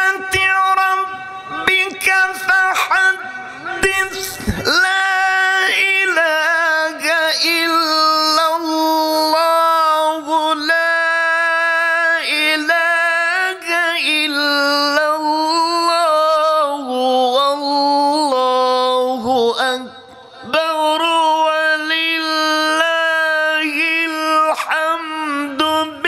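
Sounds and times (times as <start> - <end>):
man chanting melodically: 0.0 - 26.0.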